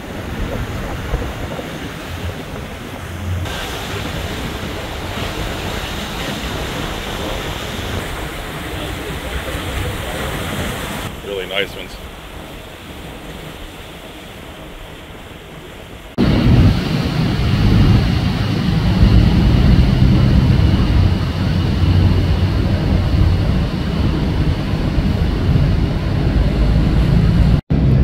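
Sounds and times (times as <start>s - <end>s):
boat wake rushing: 0.0s - 28.0s
wind buffeting microphone: 0.0s - 28.0s
low engine drone: 1.9s - 11.1s, 16.2s - 28.0s.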